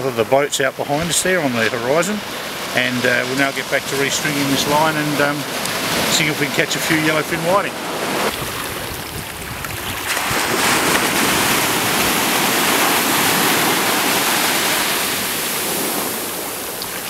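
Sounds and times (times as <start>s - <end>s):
small waves breaking on sand: 0.1s - 17.0s.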